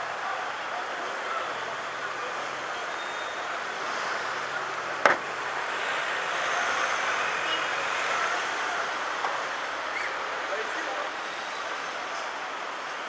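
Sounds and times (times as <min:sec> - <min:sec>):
cars and scooters in traffic: 0:00.0 - 0:13.0
sharp knock: 0:05.0 - 0:05.3.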